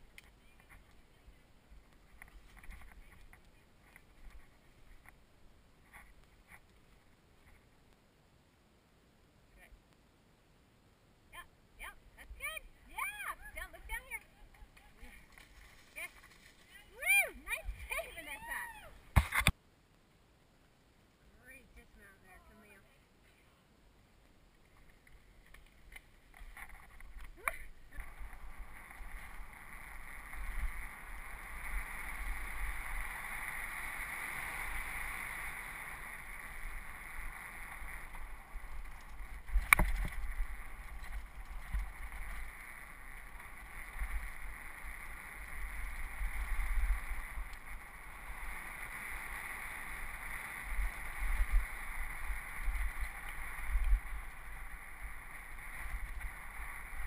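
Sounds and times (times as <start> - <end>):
bike tyre noise on dirt trail: 0.0 - 8.0, 12.7 - 19.6, 24.1 - 57.0.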